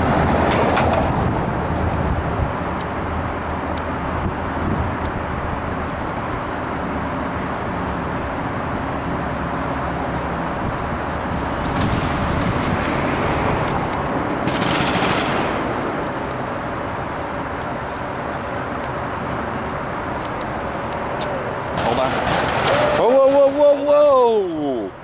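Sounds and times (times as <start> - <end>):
vehicle passing: 0.0 - 18.2
traffic noise: 0.0 - 25.0
distant gunfire cracks: 14.4 - 16.1, 21.8 - 23.6.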